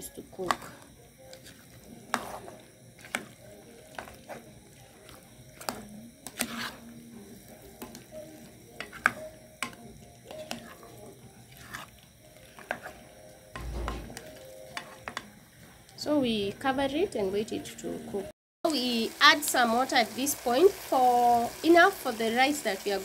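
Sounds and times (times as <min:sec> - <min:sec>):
faint sizzle: 0:00.0 - 0:23.0
spoon knocking and scraping pot: 0:00.4 - 0:04.4, 0:05.0 - 0:06.9, 0:08.7 - 0:10.9, 0:11.5 - 0:15.3.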